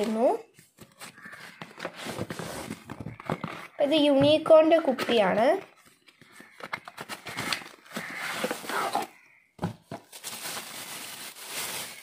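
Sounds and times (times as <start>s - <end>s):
cardboard box rustling: 0.6s - 3.8s
plastic bag crinkling: 10.0s - 12.0s.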